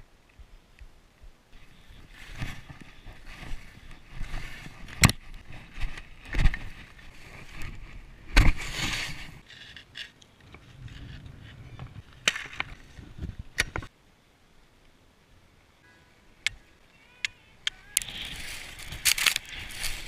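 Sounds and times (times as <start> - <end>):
skis scraping over snow: 1.6 - 9.8, 18.1 - 20.0.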